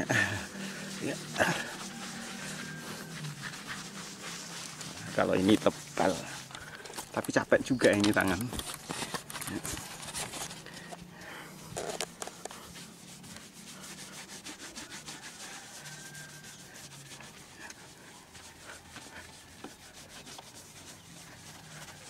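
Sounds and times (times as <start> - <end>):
sponge pad scrubbing car paint: 0.0 - 22.0.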